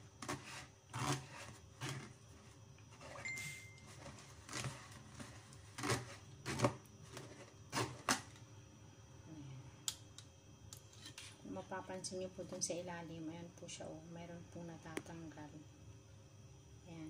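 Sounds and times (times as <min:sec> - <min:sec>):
metal spoon scraping wire strainer: 0:10.9 - 0:11.4.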